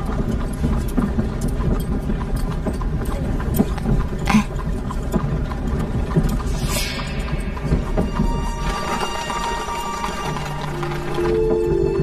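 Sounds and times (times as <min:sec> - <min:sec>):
carriage wheels rumbling: 0:00.0 - 0:12.0
hooves clip-clopping: 0:00.0 - 0:12.0.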